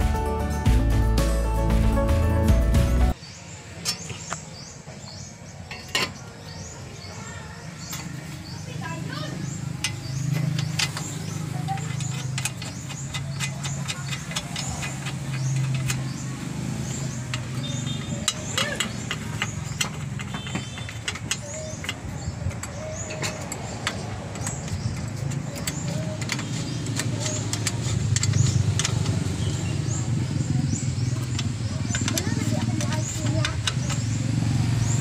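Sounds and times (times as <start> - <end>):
wrench clicking on bolts: 9.6 - 35.0.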